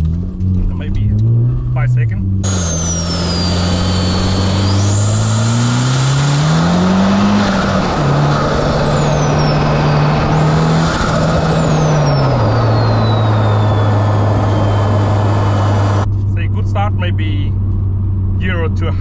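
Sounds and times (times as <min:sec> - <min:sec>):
car engine accelerating: 0:00.0 - 0:19.0
road and wind noise: 0:00.0 - 0:19.0
high turbo whistle: 0:02.4 - 0:16.1.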